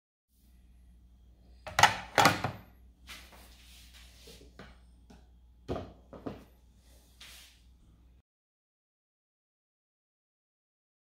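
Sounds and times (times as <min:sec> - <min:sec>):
faint low hum: 0:00.4 - 0:08.2
tableware knocking on table: 0:05.7 - 0:06.5.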